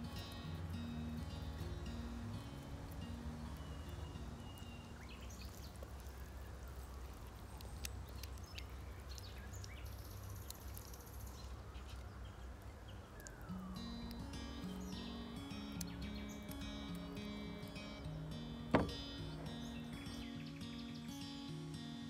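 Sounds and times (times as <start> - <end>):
birds chirping: 0.0 - 22.0.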